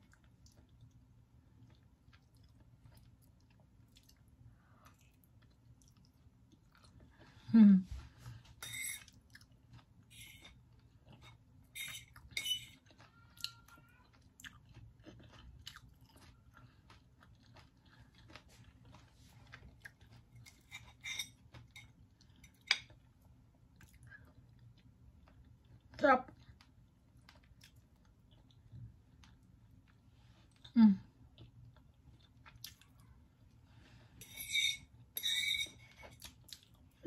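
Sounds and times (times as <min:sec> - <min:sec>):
person chewing food: 0:00.0 - 0:37.0
fork clinking on plate: 0:08.6 - 0:09.1, 0:11.8 - 0:12.8, 0:34.2 - 0:36.2.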